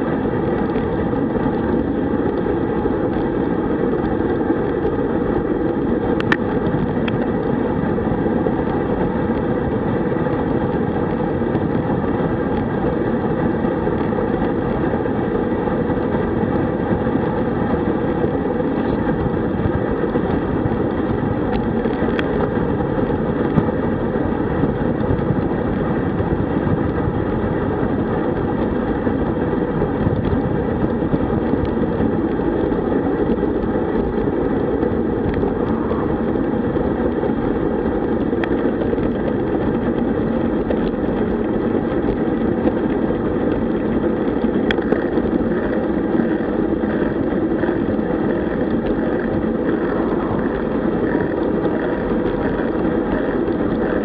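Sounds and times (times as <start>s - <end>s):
bike tyres on asphalt: 0.0s - 54.0s
wind rush on microphone: 0.0s - 54.0s.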